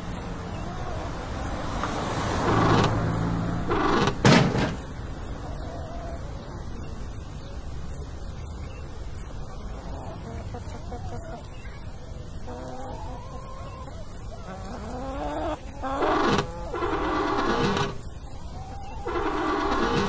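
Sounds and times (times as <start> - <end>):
loud thump: 4.1 - 4.9
car wheel spinning against rag: 16.0 - 18.1, 19.0 - 20.0.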